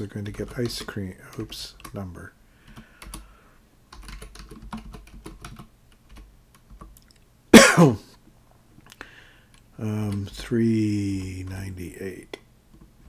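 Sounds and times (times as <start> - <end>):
typing on keyboard: 0.0 - 2.0, 2.7 - 3.3, 3.9 - 7.1
person coughing: 7.6 - 8.1.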